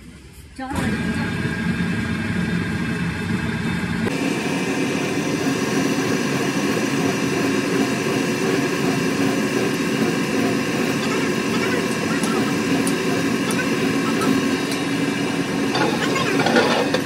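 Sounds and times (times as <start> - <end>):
hydraulic pump motor running: 0.7 - 17.0.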